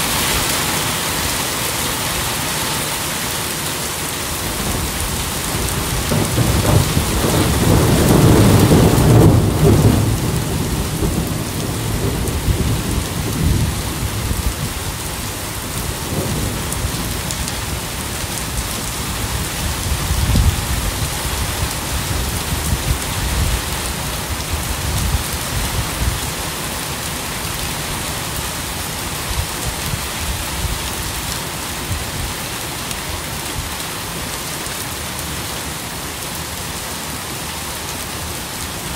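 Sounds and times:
steady rain falling: 0.0s - 38.9s
thunder rolling: 4.5s - 15.1s.

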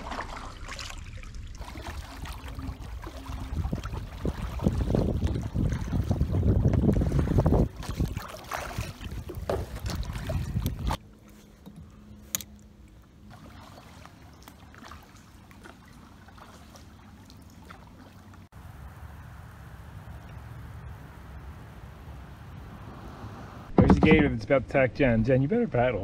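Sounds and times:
splashy paddle strokes: 0.0s - 11.0s, 13.3s - 18.3s
quiet water noise: 0.0s - 26.0s
wind on microphone: 1.9s - 11.0s.

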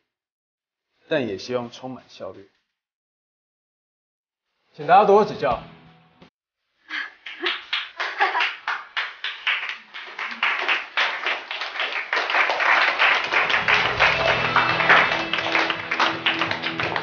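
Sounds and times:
background music: 5.1s - 6.3s, 13.4s - 17.0s
group applauding: 7.0s - 17.0s.

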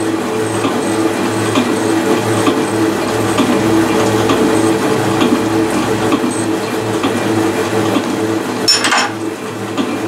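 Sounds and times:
machine hum: 0.0s - 10.0s
milling machine cutting metal: 0.8s - 9.5s.

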